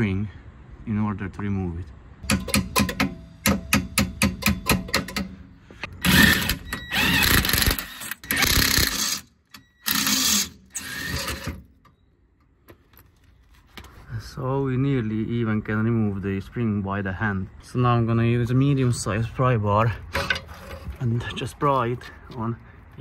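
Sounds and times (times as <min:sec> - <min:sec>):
impact wrench hammering: 0:02.2 - 0:05.4.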